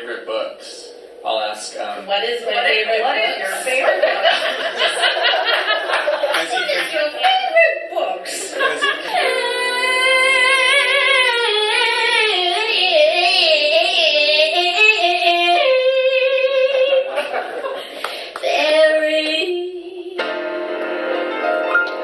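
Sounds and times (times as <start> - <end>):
women singing into microphones: 8.3 - 17.4, 18.3 - 20.4.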